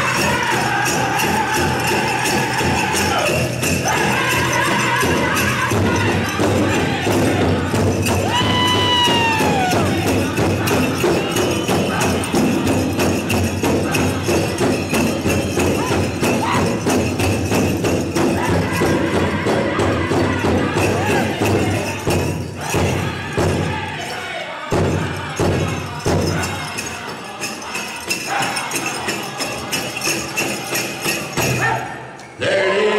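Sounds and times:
large hand drum beating: 0:00.0 - 0:23.8
bells jingling: 0:00.0 - 0:32.3
men singing: 0:00.0 - 0:32.9.

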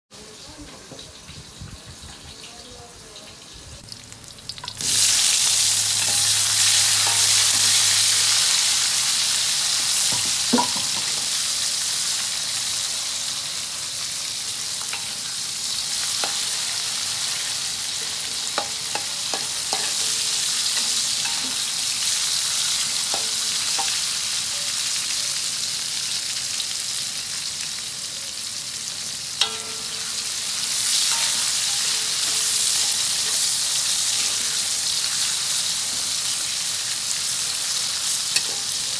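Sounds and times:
food sizzling in wok: 0:00.2 - 0:38.9
metal spatula scraping wok: 0:04.7 - 0:08.6, 0:14.8 - 0:24.1, 0:29.4 - 0:36.3, 0:38.2 - 0:38.9.

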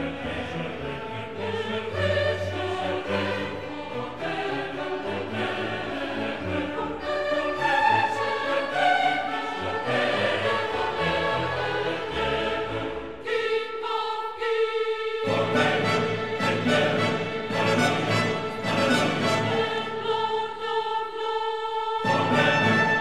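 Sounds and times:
choir singing held notes: 0:00.0 - 0:23.0
orchestral accompaniment: 0:15.3 - 0:20.4, 0:22.0 - 0:23.0.

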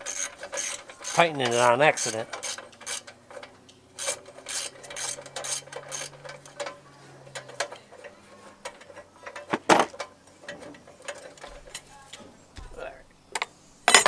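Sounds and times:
ratchet wrench clicking: 0:00.0 - 0:07.8.

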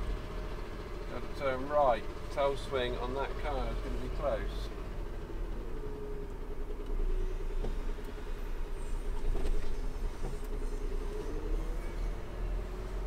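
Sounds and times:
lorry diesel engine rumbling: 0:00.0 - 0:13.0.

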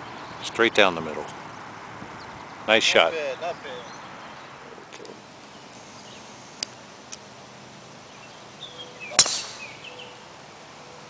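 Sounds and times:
golf club striking ball: 0:09.1 - 0:09.8.

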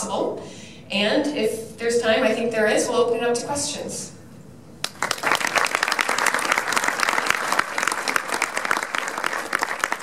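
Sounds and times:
audience applauding: 0:04.8 - 0:10.0.

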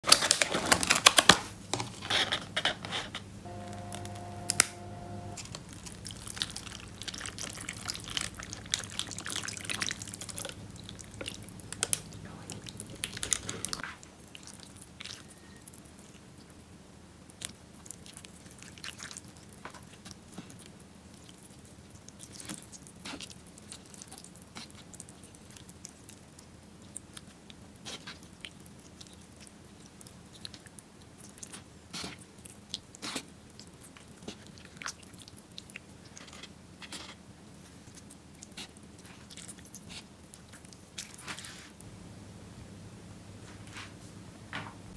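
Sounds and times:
chopsticks stirring noodles in broth: 0:02.0 - 0:15.2
steady low hum: 0:03.1 - 0:13.8, 0:41.8 - 0:44.9.

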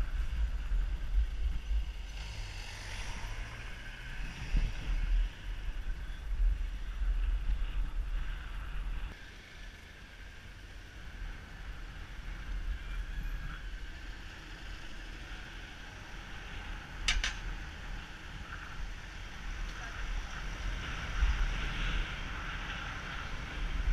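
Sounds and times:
wind buffeting microphone: 0:00.0 - 0:09.2, 0:16.6 - 0:23.9
road noise: 0:00.0 - 0:23.9.

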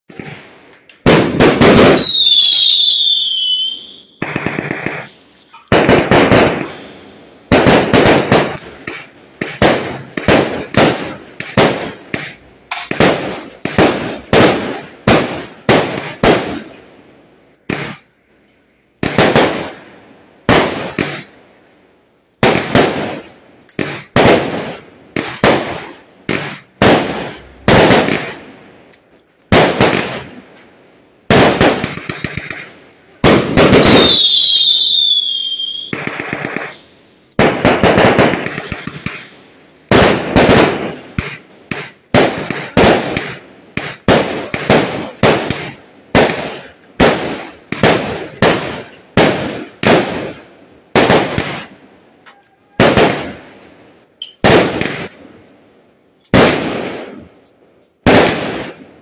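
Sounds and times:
fireworks bursting and crackling: 0:00.0 - 0:59.0
firework whistle falling in pitch: 0:01.9 - 0:04.2, 0:33.8 - 0:35.9.

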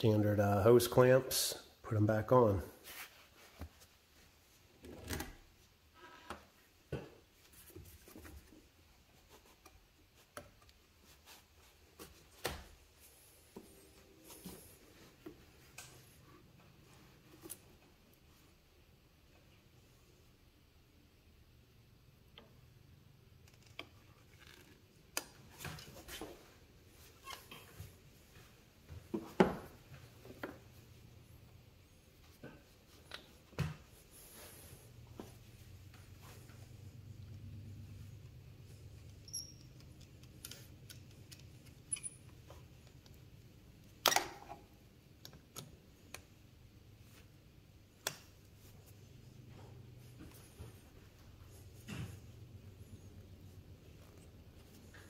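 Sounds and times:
soft rubbing: 0:02.7 - 0:04.7, 0:29.7 - 0:37.2.

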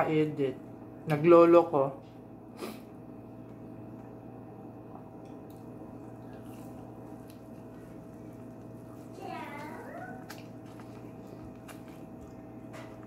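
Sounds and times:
room hum: 0:00.0 - 0:13.0
eating mouth noises: 0:06.1 - 0:13.0.

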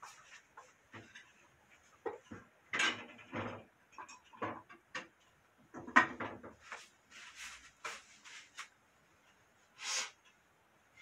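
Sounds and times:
rustling and brushing: 0:00.0 - 0:02.0, 0:06.4 - 0:08.9
clatter of knocks: 0:02.0 - 0:06.6
short hiss: 0:09.8 - 0:10.2.

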